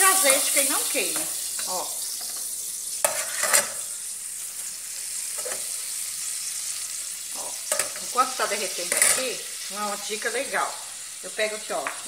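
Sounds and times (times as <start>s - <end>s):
butter sizzling in a pot: 0.0s - 12.0s
metal spoon scraping a pot: 1.2s - 3.9s, 5.3s - 5.8s, 8.9s - 9.3s.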